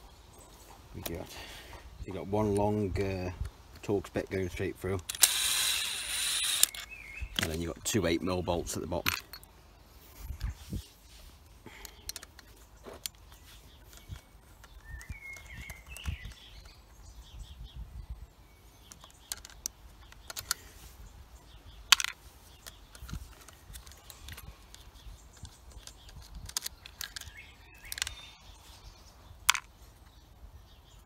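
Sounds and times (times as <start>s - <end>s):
birds chirping: 0.0s - 31.0s
hand tools clicking on plastic housing: 5.0s - 7.9s, 9.0s - 9.5s, 11.7s - 17.0s, 18.8s - 20.7s, 21.9s - 28.2s, 29.5s - 29.7s.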